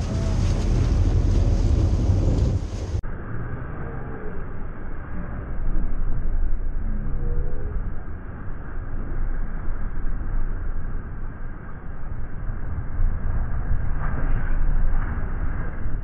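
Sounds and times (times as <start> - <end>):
boat engines rumbling: 0.0 - 3.0
water churning: 0.0 - 3.0
wind noise: 0.0 - 3.2, 4.3 - 16.0.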